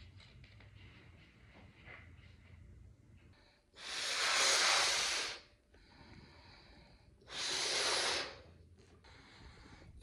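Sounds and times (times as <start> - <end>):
man blowing into balloon: 3.8 - 5.4, 7.3 - 8.4.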